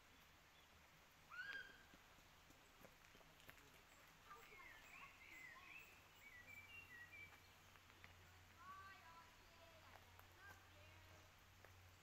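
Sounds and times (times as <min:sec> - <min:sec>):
birdsong whistled notes: 0:04.4 - 0:07.6.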